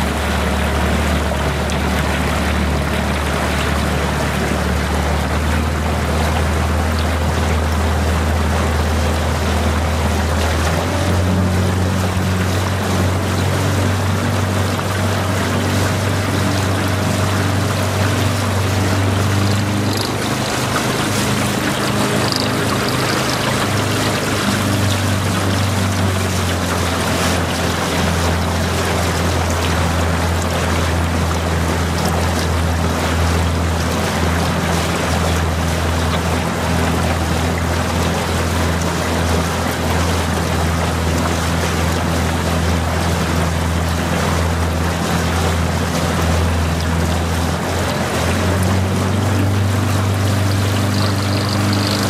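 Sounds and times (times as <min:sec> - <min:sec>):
outboard motor humming: 0:00.0 - 0:52.0
rushing water: 0:00.0 - 0:52.0
wind: 0:00.0 - 0:52.0.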